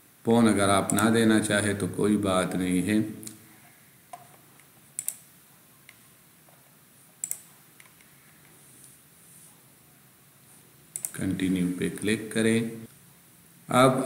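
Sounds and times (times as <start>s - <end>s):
computer mouse clicking: 0.9s - 1.1s, 4.1s - 6.0s, 7.2s - 8.6s, 10.9s - 11.2s.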